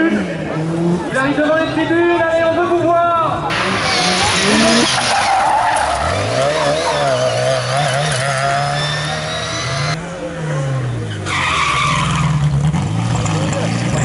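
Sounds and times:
car engine revving: 3.5 - 14.0.

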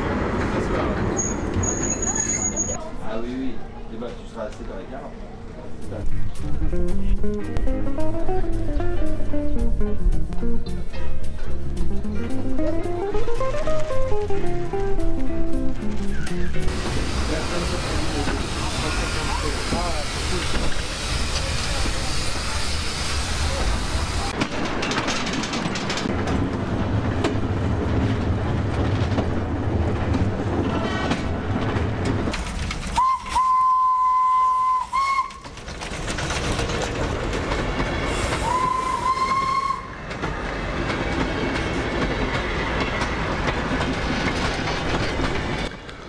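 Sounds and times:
train wheels clattering on rails: 23.5 - 33.4, 34.9 - 46.0
steam whistle blasts: 33.0 - 35.4, 38.3 - 40.0.

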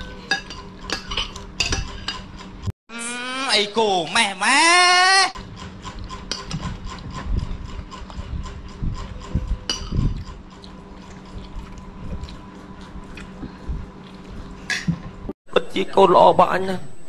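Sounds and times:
metal spoons scraping a plate: 0.0 - 2.6, 5.4 - 11.5
sipping and chewing: 9.9 - 14.6.

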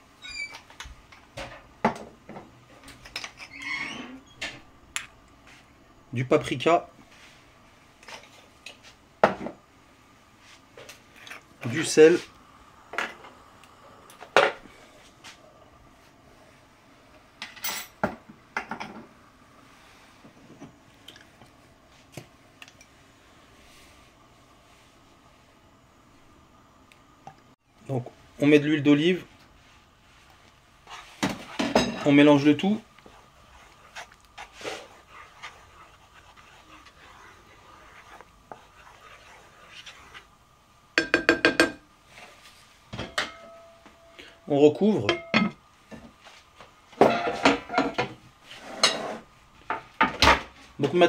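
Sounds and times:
sauce stirring in a pot: 29.5 - 41.0.

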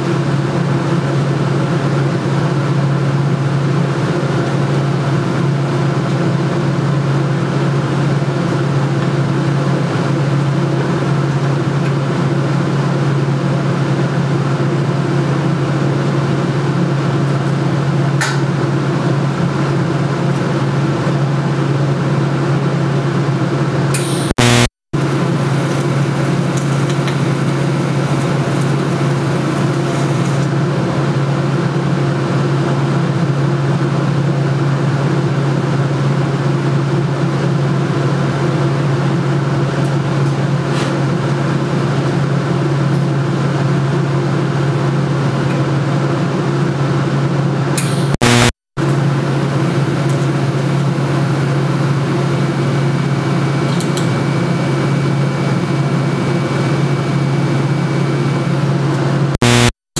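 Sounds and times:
welding machine hum: 0.0 - 31.2, 47.8 - 52.1, 59.4 - 59.8
loud crackle: 24.1 - 24.7, 59.4 - 59.7.

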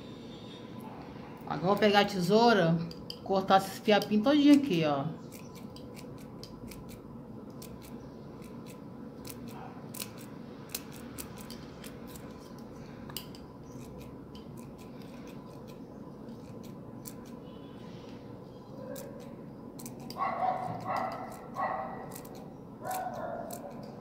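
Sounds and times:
low background hum: 0.0 - 24.0
scissors snipping: 4.0 - 17.4, 18.9 - 24.0.

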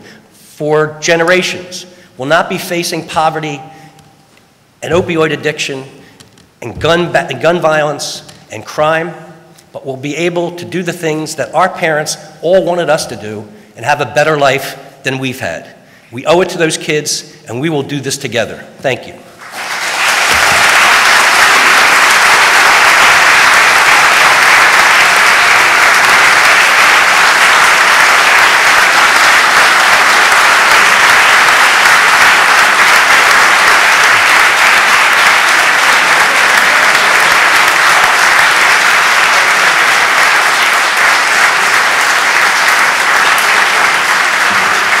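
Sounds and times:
audience applause: 19.4 - 45.0.

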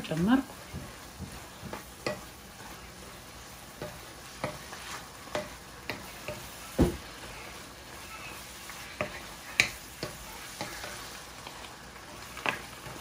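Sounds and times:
vegetables sizzling in oil: 0.0 - 13.0
wooden spoon stirring: 0.0 - 13.0
spoon knocking against pan: 0.7 - 2.3, 3.8 - 7.1, 9.0 - 11.0.

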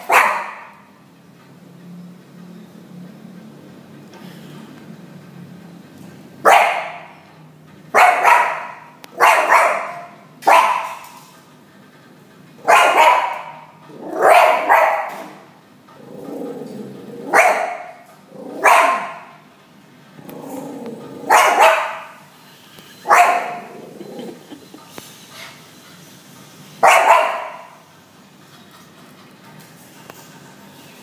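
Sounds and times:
dog barking sharply: 0.0 - 0.8, 6.4 - 7.1, 8.0 - 11.2, 12.6 - 15.4, 17.3 - 18.0, 18.6 - 19.3, 21.3 - 22.2, 23.1 - 23.7, 26.8 - 27.8.

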